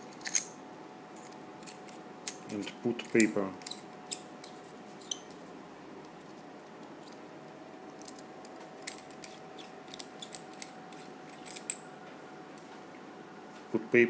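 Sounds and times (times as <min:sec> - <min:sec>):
faint steady hum: 0:00.0 - 0:14.0.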